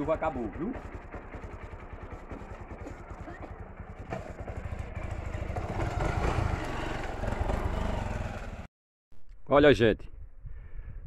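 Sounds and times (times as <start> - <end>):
motorcycle engine idling and revving: 0.0 - 8.7.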